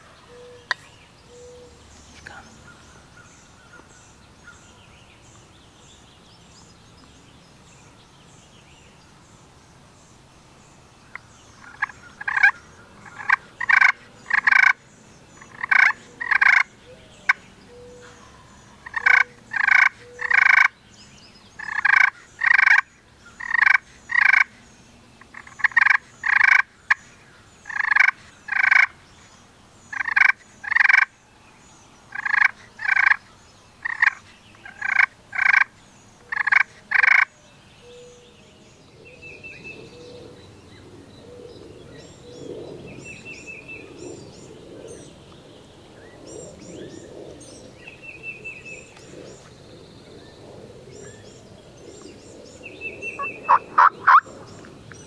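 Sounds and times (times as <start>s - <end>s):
wild turkey calling: 15.4s - 18.2s, 18.8s - 20.7s, 36.3s - 37.3s, 53.0s - 54.6s.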